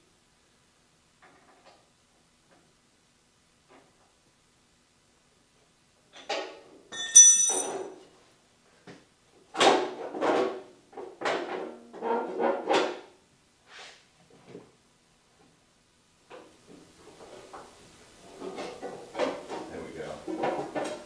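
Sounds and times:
sharp metal clink: 6.9s - 7.9s.

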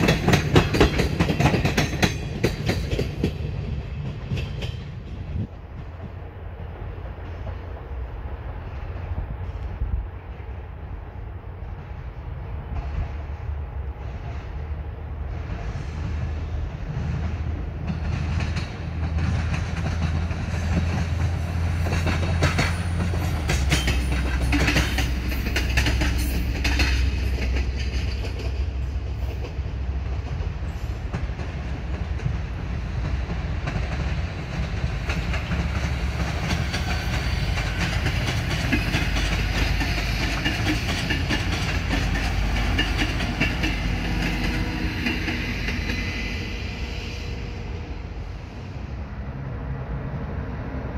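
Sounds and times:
wheels clicking over rail joints: 0.0s - 8.0s, 15.3s - 47.6s
locomotive low hum: 0.0s - 50.9s
train screeching rolling noise: 0.0s - 50.9s.

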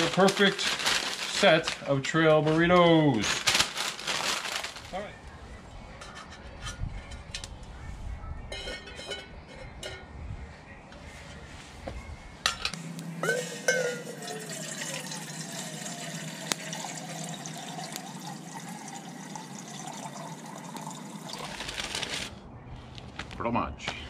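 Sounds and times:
water pouring into metal pot: 13.2s - 21.7s.

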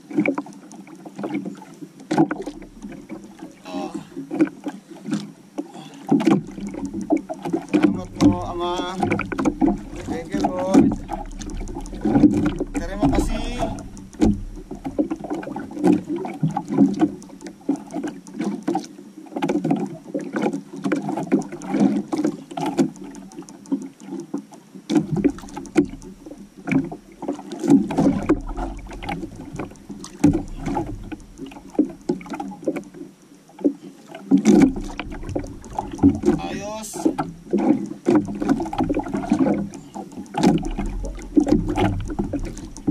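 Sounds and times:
water lapping against canoe hull: 0.0s - 42.9s
fishing reel clicks and knocks: 6.8s - 18.7s.

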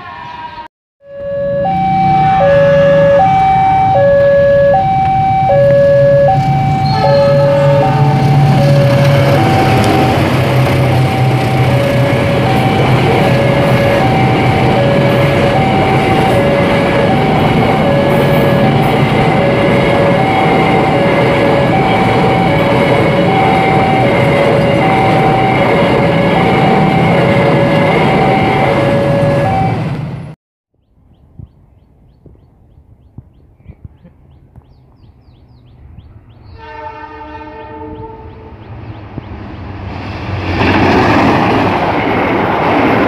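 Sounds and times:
two-tone signal: 1.0s - 29.9s
freight train rumbling past: 1.4s - 30.4s, 34.3s - 43.0s.

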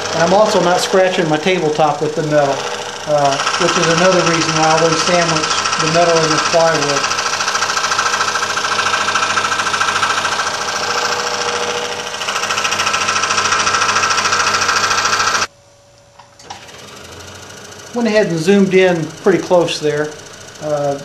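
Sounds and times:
scroll saw cutting: 0.0s - 15.5s, 16.4s - 21.0s.

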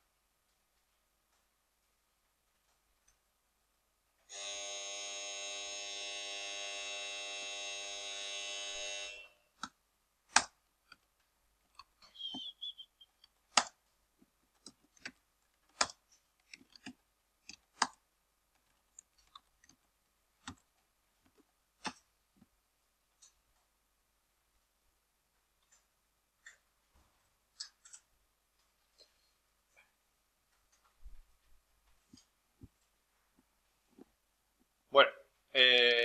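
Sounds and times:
electric buzz: 4.3s - 9.5s.

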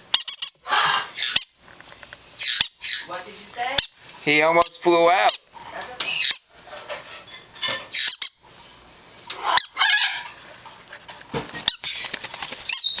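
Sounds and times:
parrots squawking and chirping: 0.0s - 10.8s, 11.5s - 13.0s.

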